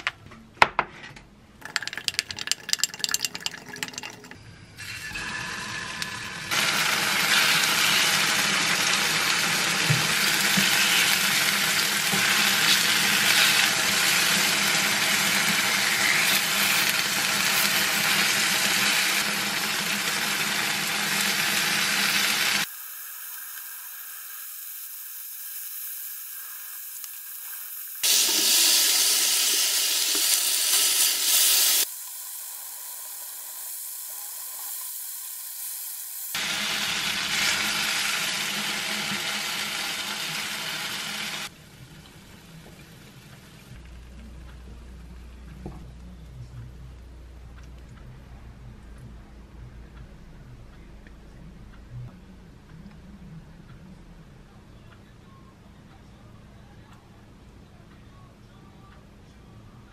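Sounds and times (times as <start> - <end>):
tofu sizzling in frying pan: 6.5 - 41.5.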